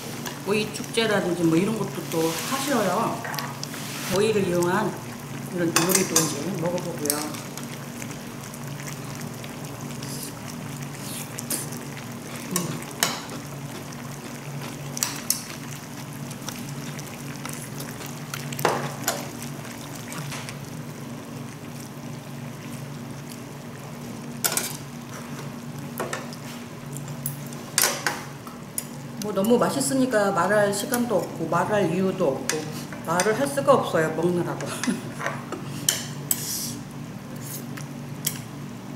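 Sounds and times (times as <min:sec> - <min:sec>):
stew bubbling in pot: 0:00.0 - 0:29.4
steady low hum: 0:00.0 - 0:38.9.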